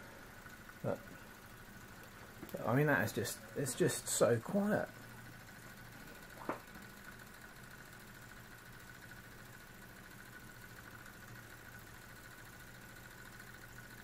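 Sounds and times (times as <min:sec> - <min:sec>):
model steam engine hissing: 0:02.7 - 0:04.9.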